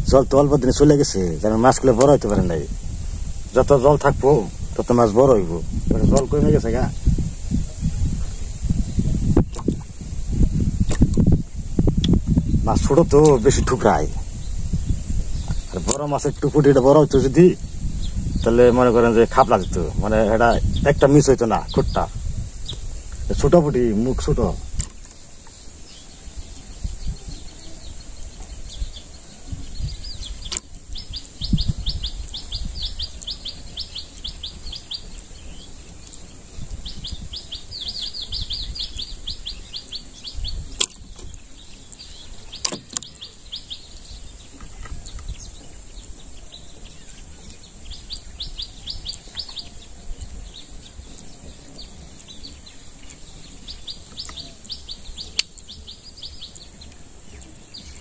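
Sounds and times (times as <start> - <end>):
low gusty rumble: 0.0 - 58.0
steady high hiss: 0.0 - 58.0
sharp clicks: 1.9 - 2.4, 6.1 - 6.3, 10.8 - 11.3, 24.8 - 25.6, 30.4 - 30.8, 40.7 - 43.3, 54.0 - 55.8.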